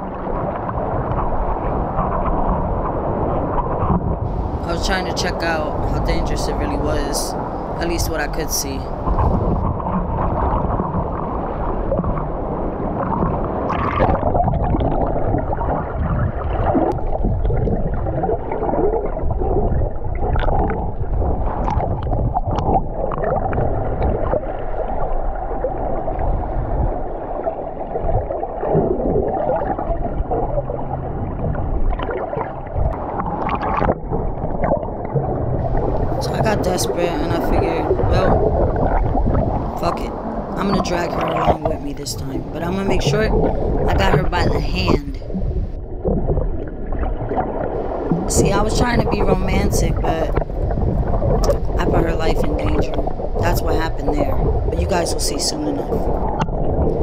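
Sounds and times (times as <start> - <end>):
muffled rushing water underwater: 0.0 - 57.0.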